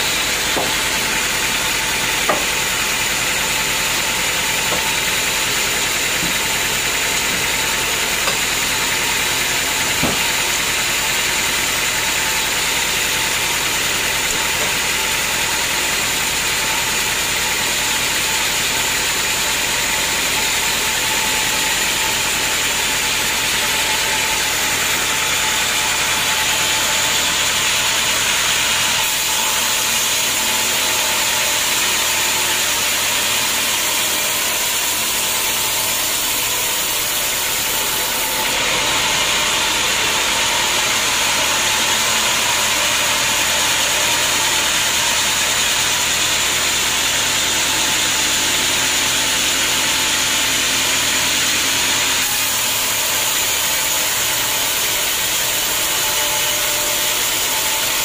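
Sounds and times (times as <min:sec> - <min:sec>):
saw blade hissing through log: 0:00.0 - 0:17.2
sawmill machine drone: 0:00.0 - 0:58.0.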